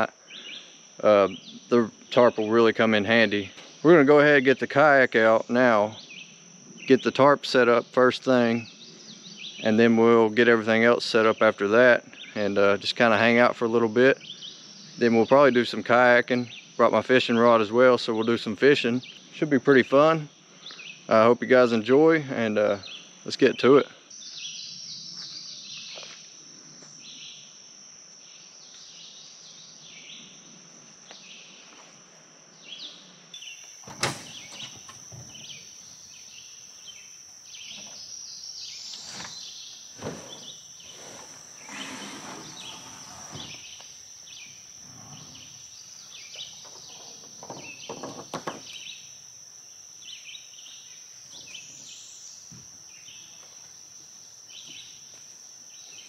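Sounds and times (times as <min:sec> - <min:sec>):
high-pitched insect drone: 0:00.0 - 0:56.0
birds chirping: 0:32.6 - 0:55.1.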